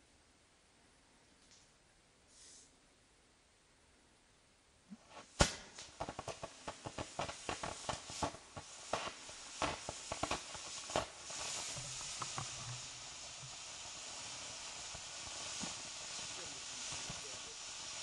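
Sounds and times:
firework hissing: 2.3 - 2.7, 5.0 - 18.0
firework crackling pops: 4.9 - 18.0.

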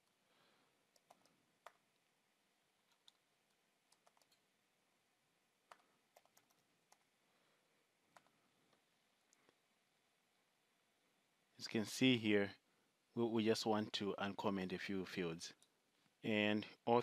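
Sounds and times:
keyboard keystrokes: 3.9 - 4.4.

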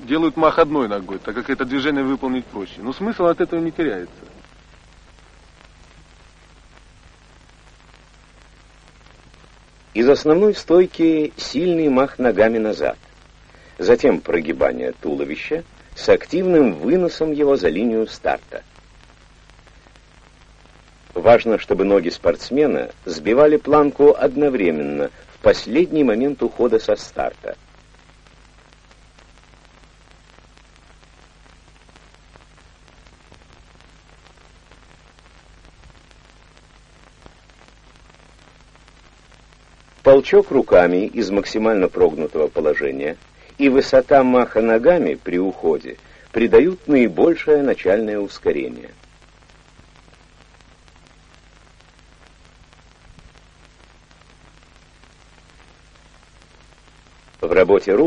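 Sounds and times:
film hiss: 0.0 - 58.0
low mains hum: 0.0 - 58.0.

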